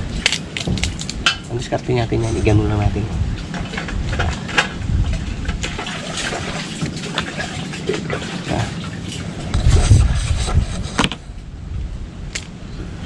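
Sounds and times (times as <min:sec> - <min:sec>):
crab shell cracking: 0:00.0 - 0:01.4.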